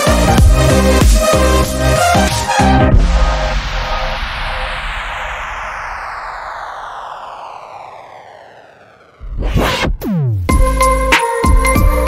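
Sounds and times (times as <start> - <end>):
electronic music: 0.0 - 12.0
falling whooshing sweep: 2.6 - 10.1.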